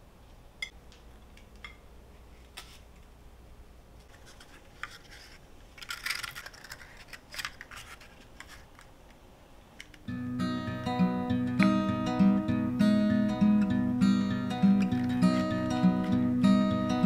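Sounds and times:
paper liners rustling: 4.0 - 8.9
acoustic guitar music: 10.1 - 17.0.

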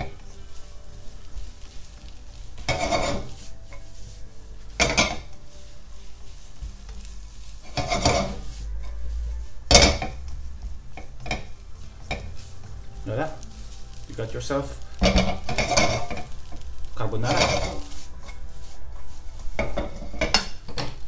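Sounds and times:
spatula scraping in a wok: 0.0 - 21.0.

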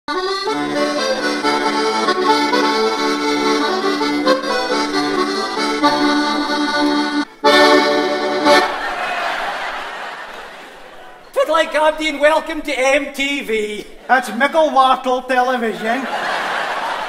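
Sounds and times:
instrumental music with held chords: 0.1 - 8.8.

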